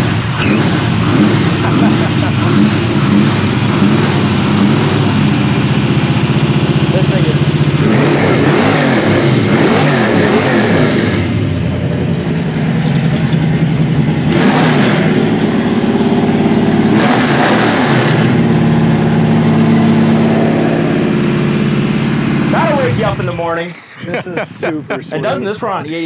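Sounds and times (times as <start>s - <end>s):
car engine idling and revving: 0.0s - 26.0s.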